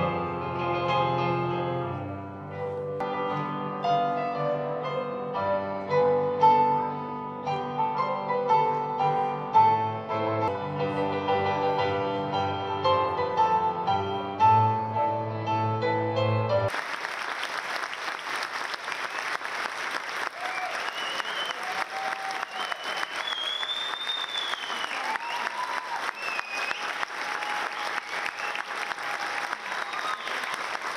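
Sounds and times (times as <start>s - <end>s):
soft piano music: 0.0s - 16.7s
crowd applauding: 16.7s - 30.9s.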